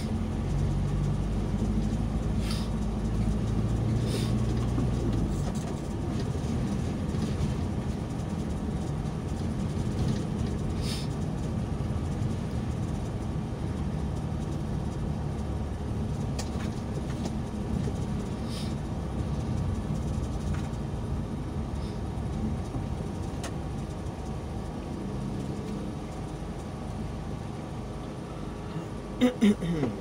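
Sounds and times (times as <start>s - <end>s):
car engine and tyres on wet road: 0.0s - 30.0s.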